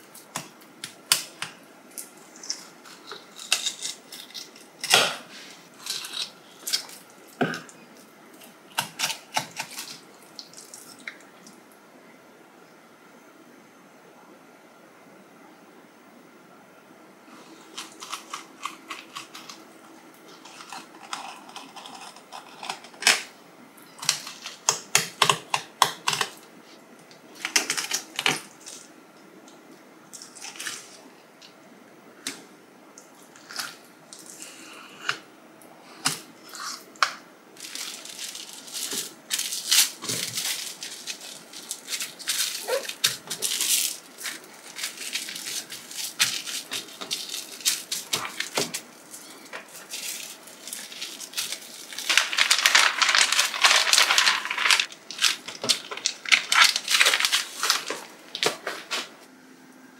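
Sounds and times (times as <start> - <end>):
plastic cling film crinkling: 37.0 - 59.2.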